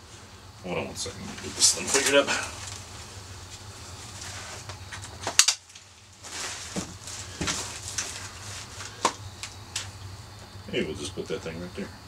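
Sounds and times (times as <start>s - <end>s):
steady low hum: 0.0s - 12.0s
nylon rustling: 1.2s - 9.9s.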